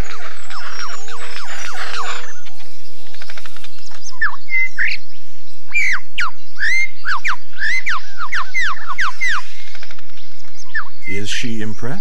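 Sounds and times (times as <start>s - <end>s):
lyrebird whistling song: 0.0s - 12.0s.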